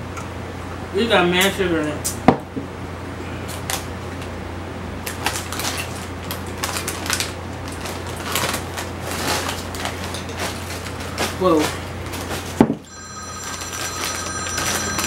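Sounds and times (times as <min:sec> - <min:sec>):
chip bag crinkling: 0:05.0 - 0:12.6, 0:13.4 - 0:15.0.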